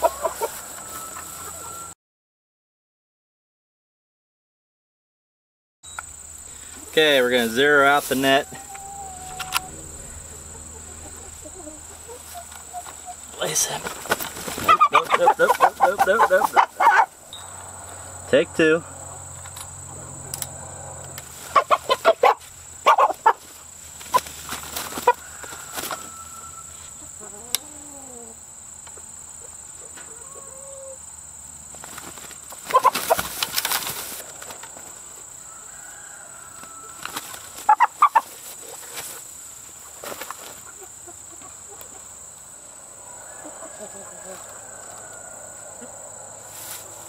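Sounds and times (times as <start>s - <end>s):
chicken clucking: 0.0s - 1.9s, 6.8s - 17.2s, 21.5s - 23.4s, 24.0s - 31.0s, 32.5s - 34.2s, 36.6s - 42.2s
scuffling: 6.5s - 17.2s, 21.2s - 27.0s, 31.7s - 35.2s, 46.5s - 47.0s.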